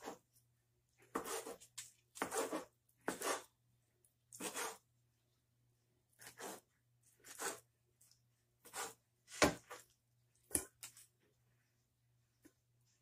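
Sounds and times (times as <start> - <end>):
knife chopping on cutting board: 1.1 - 1.6, 2.2 - 3.5, 8.7 - 9.7.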